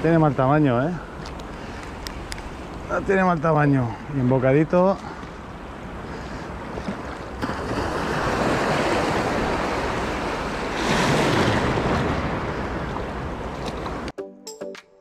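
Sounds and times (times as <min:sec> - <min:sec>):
small waves washing around legs: 0:05.0 - 0:14.1
wind on microphone: 0:07.6 - 0:14.1.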